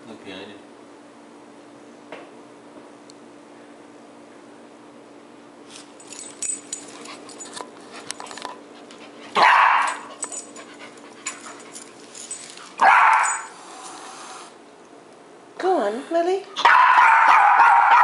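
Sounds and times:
puppy barking: 9.4 - 10.1, 12.8 - 13.5, 16.6 - 18.0
clicks and rattles of scuffling: 9.8 - 13.5.

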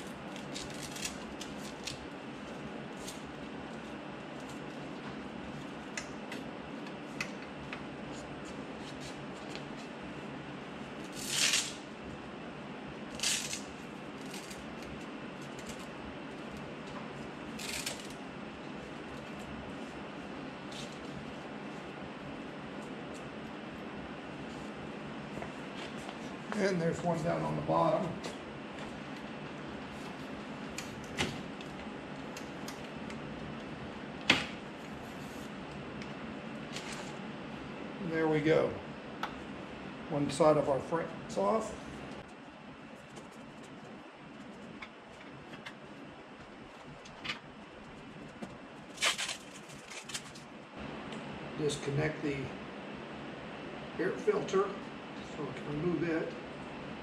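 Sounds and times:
steady background hum: 0.0 - 57.0
steady background noise: 0.0 - 57.0
velcro ripping: 0.3 - 2.0, 11.1 - 11.8.

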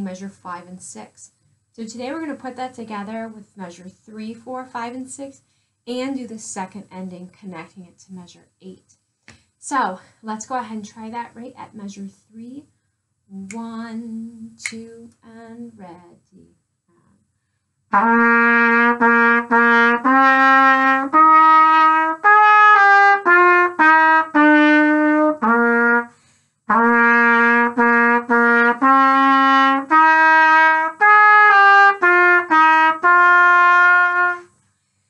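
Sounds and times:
solo trumpet melody: 17.9 - 34.6.

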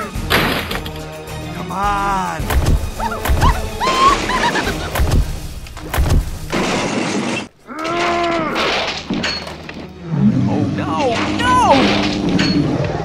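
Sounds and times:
crashing shattering impacts: 2.4 - 9.9, 11.0 - 13.0.

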